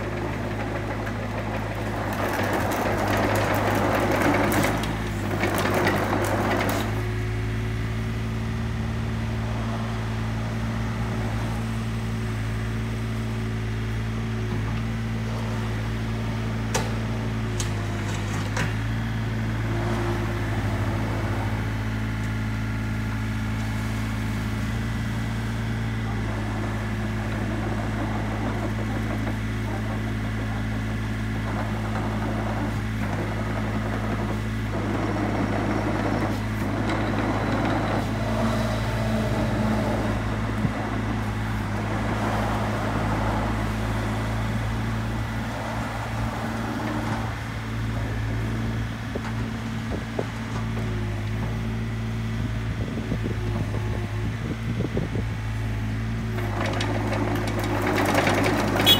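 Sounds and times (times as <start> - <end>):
excavator diesel engine running: 0.0 - 58.9.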